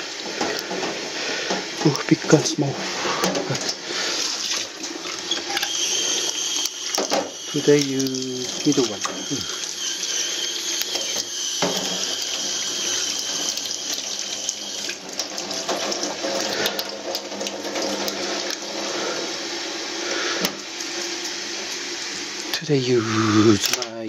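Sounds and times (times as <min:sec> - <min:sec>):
water splashing over hands: 0:03.0 - 0:05.7, 0:07.6 - 0:09.5
tap running into steel sink: 0:10.8 - 0:12.7.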